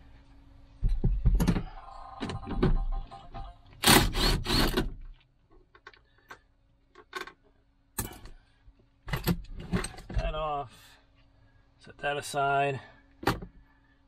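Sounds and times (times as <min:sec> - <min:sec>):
cordless power driver whirring: 0:03.8 - 0:04.8.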